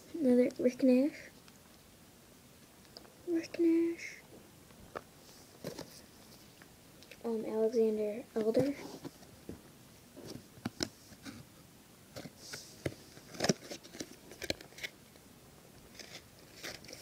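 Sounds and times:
card handling clicks and rustles: 0:12.1 - 0:15.0, 0:15.9 - 0:17.0.

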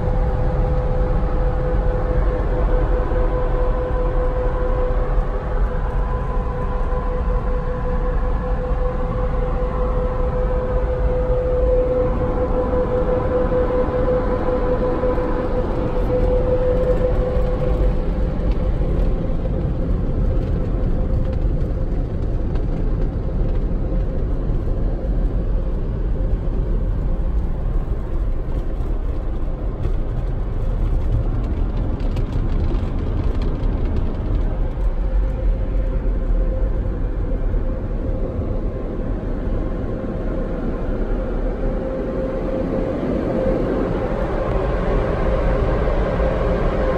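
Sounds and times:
blower dryers rushing air: 0:34.4 - 0:46.9.

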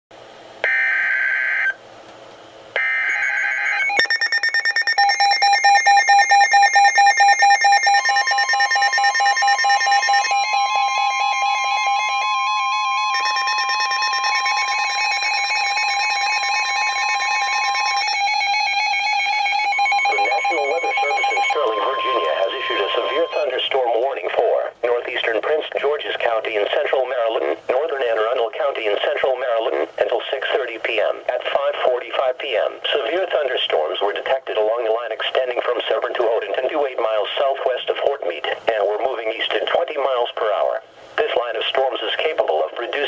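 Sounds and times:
steady warning tone: 0:02.8 - 0:24.0
fast pulsing electronic beeps: 0:03.9 - 0:10.3, 0:19.7 - 0:23.6.

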